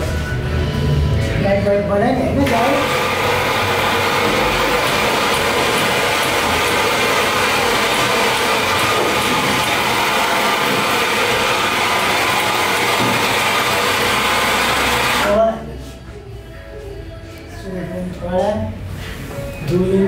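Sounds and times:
coffee grinder grinding: 2.6 - 15.3.

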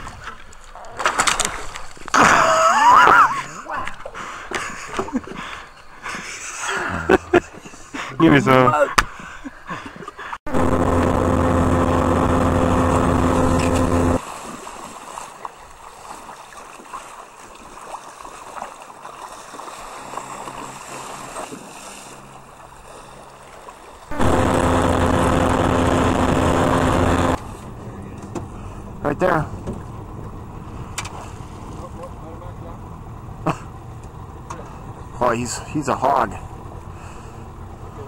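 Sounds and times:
wind: 0.0 - 38.0
boat motor running: 10.5 - 14.2, 19.8 - 38.0
rushing river water: 14.1 - 24.7.

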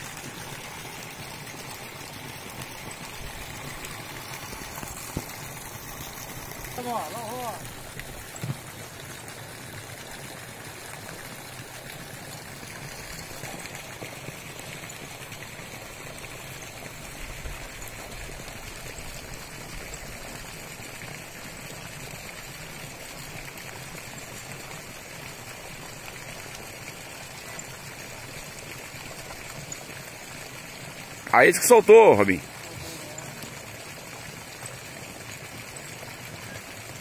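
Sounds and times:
water jet splashing into pond: 0.0 - 37.0.

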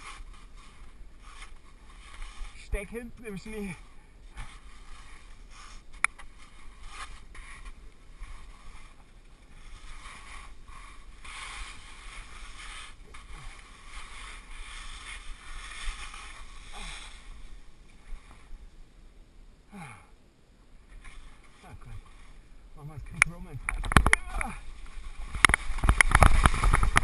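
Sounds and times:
skis swishing through snow: 0.0 - 18.6, 24.5 - 27.0.

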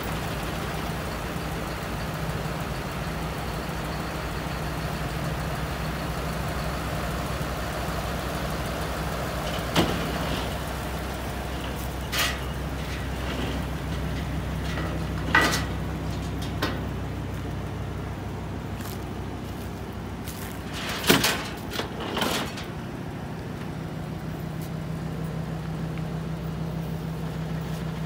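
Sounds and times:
diesel engine idling: 0.0 - 28.0
metal chains clanking and rattling: 11.5 - 17.0, 20.5 - 22.8.

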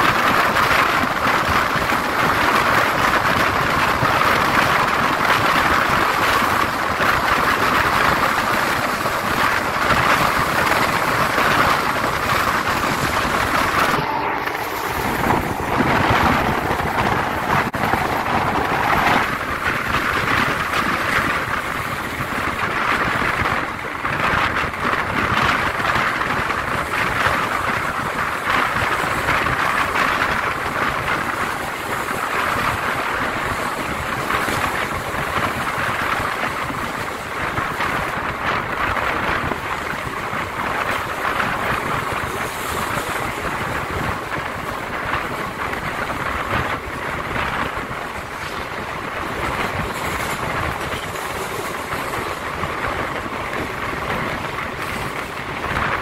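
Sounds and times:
rushing air: 0.0 - 56.0
train wheels on rails: 0.0 - 56.0.

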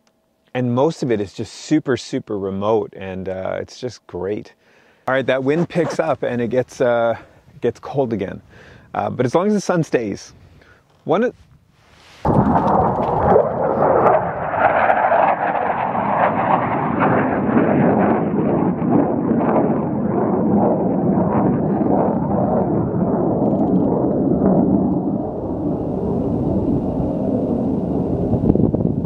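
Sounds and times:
fighter jet flying past: 12.3 - 29.0.

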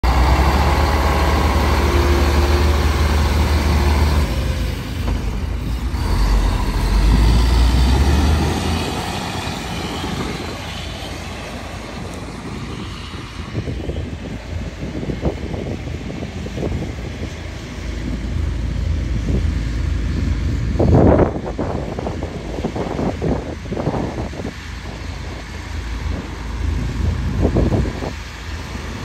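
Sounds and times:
diesel truck driving past: 0.0 - 14.7.

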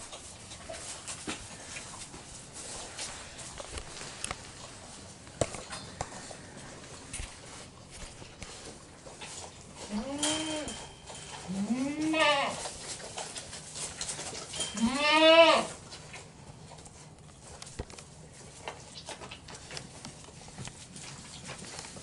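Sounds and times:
faint rustling: 0.0 - 15.1
goat kid bleating: 9.8 - 10.9, 11.5 - 12.7, 14.6 - 15.8.

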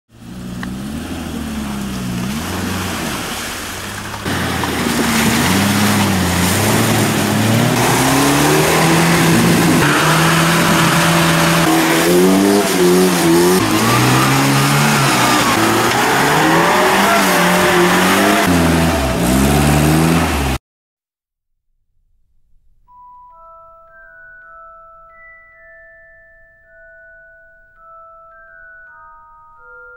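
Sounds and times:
off-road engines revving: 0.1 - 20.6.

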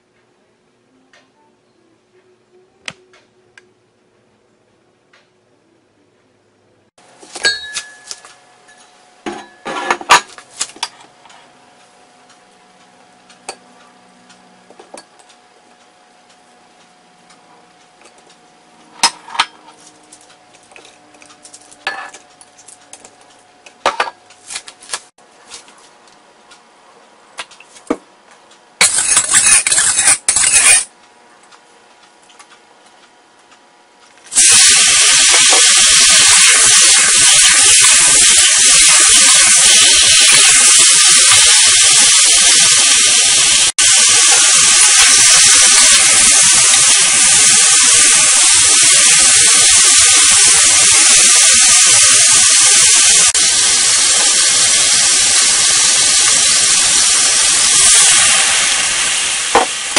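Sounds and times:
short burst of hiss: 34.3 - 58.9
meat sizzling in hot oil: 34.3 - 59.9.

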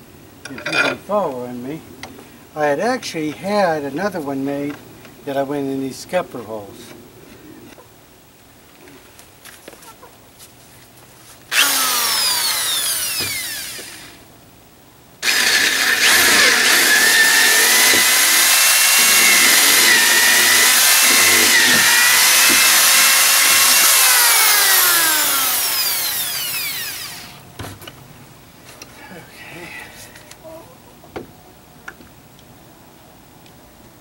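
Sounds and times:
electric drill boring: 11.5 - 14.2, 15.2 - 27.4.

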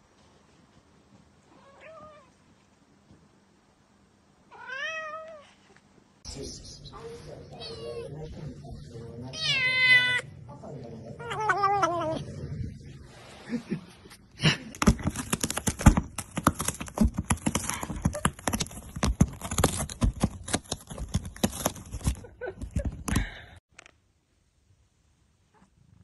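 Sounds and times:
cat chewing plastic crinkling: 14.8 - 22.9.

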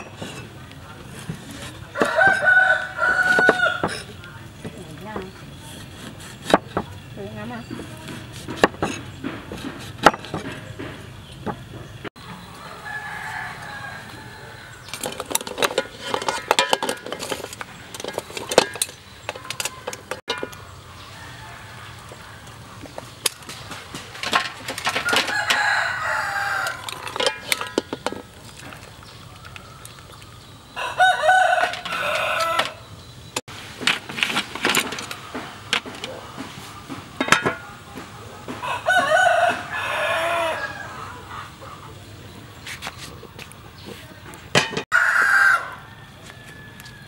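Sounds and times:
rooster crowing: 1.9 - 4.0, 12.4 - 14.9, 21.0 - 22.6, 25.0 - 27.7, 30.7 - 32.9, 38.5 - 41.5, 44.9 - 47.0
clicks and clatters: 14.8 - 20.6, 23.2 - 25.7, 26.6 - 30.3.

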